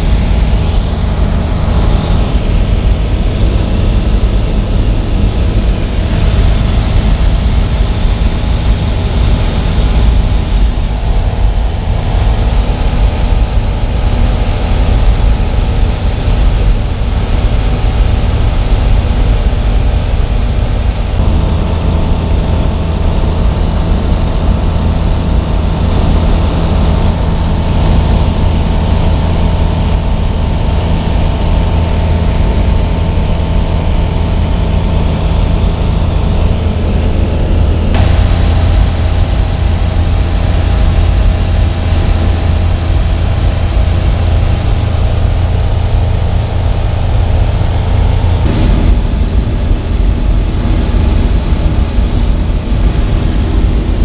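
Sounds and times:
light aircraft engine droning: 0:00.0 - 0:54.0.

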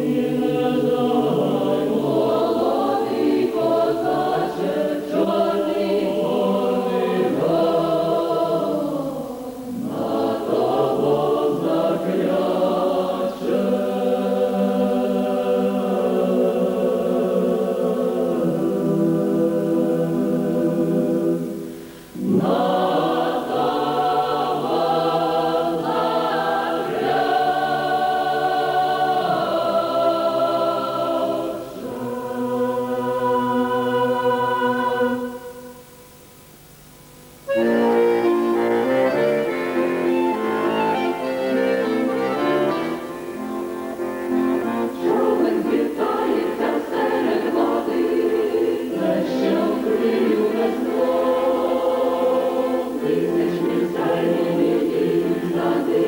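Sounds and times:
mixed choir singing folk song: 0:00.0 - 0:35.9, 0:37.5 - 0:56.0.

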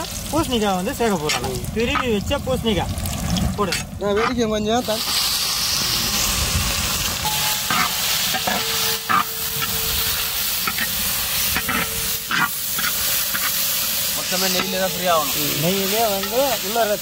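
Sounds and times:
food sizzling in a pan: 0:00.0 - 0:17.0
ladle scraping a pan: 0:07.3 - 0:16.6.

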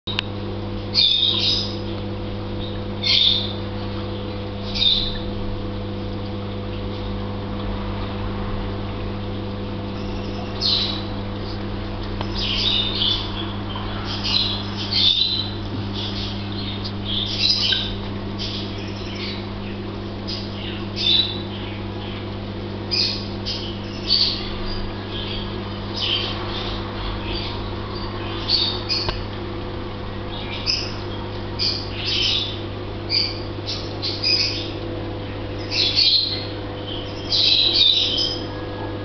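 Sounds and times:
low pump hum: 0:00.1 - 0:39.0
bird chirping: 0:01.0 - 0:01.8, 0:04.7 - 0:05.2, 0:10.0 - 0:11.1, 0:12.2 - 0:22.2, 0:22.9 - 0:29.2, 0:30.3 - 0:34.8, 0:35.6 - 0:38.6.

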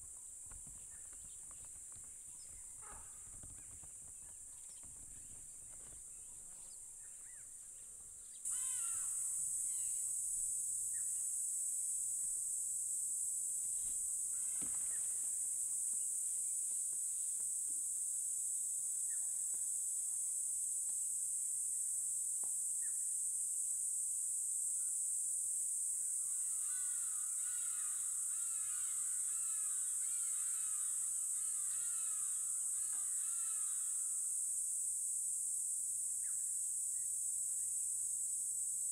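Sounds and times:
high-pitched insect drone: 0:08.5 - 0:15.6, 0:24.8 - 0:38.6.

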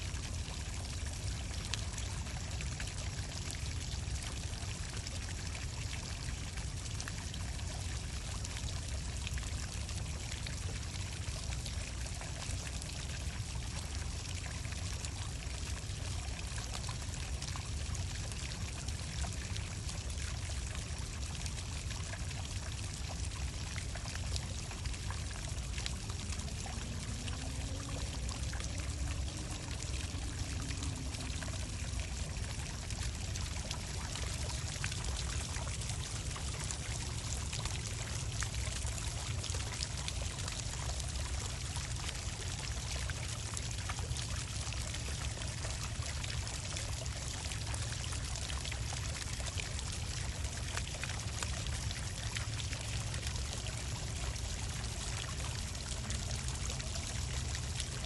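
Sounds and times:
water jets splashing onto stones: 0:00.0 - 0:58.0.

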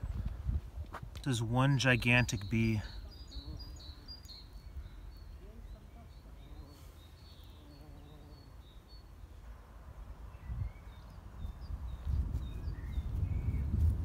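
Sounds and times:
small birds chirping: 0:01.2 - 0:09.5, 0:10.2 - 0:14.0.

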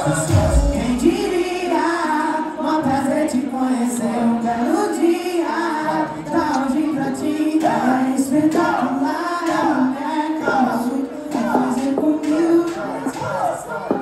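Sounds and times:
backing track music: 0:00.0 - 0:02.3
crowd singing along: 0:00.0 - 0:14.0
person singing into microphone: 0:00.0 - 0:14.0.

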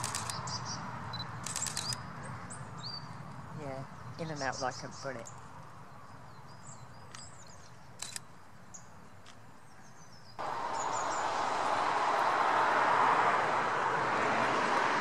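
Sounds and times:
camera shutter clicks: 0:00.0 - 0:00.4, 0:01.4 - 0:02.0, 0:08.0 - 0:08.3
small birds chirping: 0:00.0 - 0:11.5
loud steady rushing noise: 0:10.4 - 0:15.0.

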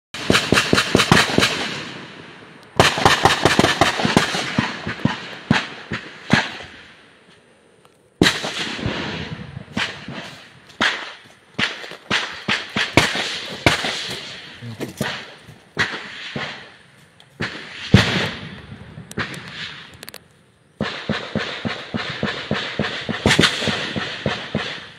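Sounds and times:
gunfire bursts: 0:00.2 - 0:07.0, 0:08.2 - 0:16.8, 0:17.4 - 0:18.5, 0:20.8 - 0:24.9.

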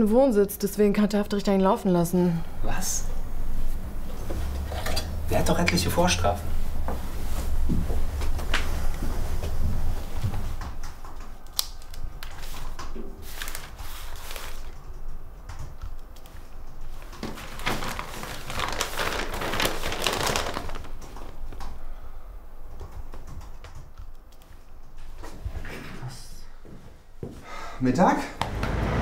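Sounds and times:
newspaper pages rustling: 0:11.8 - 0:14.8, 0:17.0 - 0:21.5.

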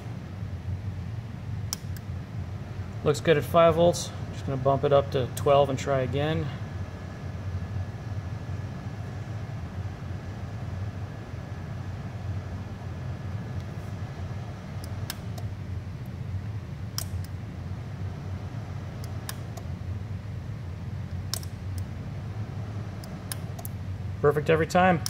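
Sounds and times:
low electrical hum: 0:00.0 - 0:25.0
power switch clicking: 0:14.8 - 0:15.5, 0:16.9 - 0:17.4, 0:19.0 - 0:19.7, 0:21.1 - 0:21.9, 0:23.0 - 0:23.8.

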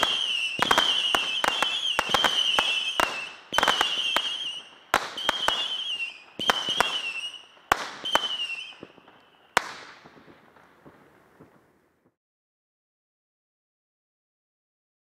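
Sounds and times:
wavering firework whistle: 0:00.0 - 0:10.2
firework crackle: 0:00.0 - 0:12.2
firework pops: 0:06.4 - 0:12.2.

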